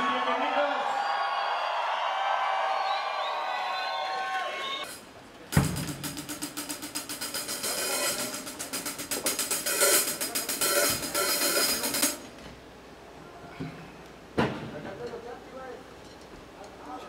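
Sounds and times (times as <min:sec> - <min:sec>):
rock drum kit beat: 0:05.5 - 0:12.2.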